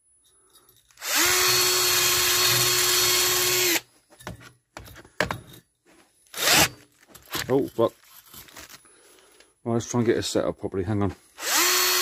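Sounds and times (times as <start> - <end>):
rotary tool motor whine: 1.0 - 3.8, 6.3 - 6.8, 11.4 - 12.0.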